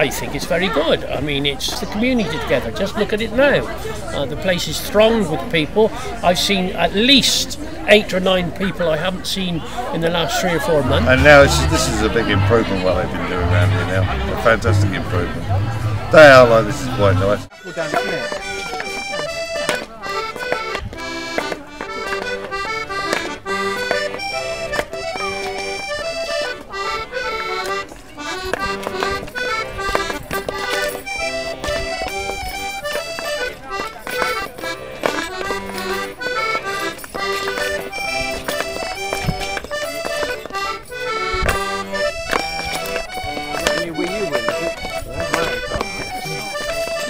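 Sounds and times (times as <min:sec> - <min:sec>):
accordion playing folk music: 0:00.0 - 0:47.0.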